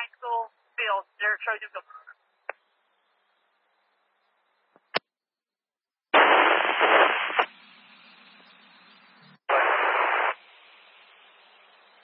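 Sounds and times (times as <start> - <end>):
radio static hiss: 0.0 - 2.6, 6.2 - 12.0.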